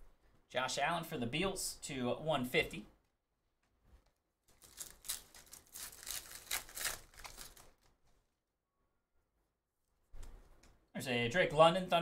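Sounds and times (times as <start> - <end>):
foil wrapper tearing and crinkling: 4.5 - 7.9.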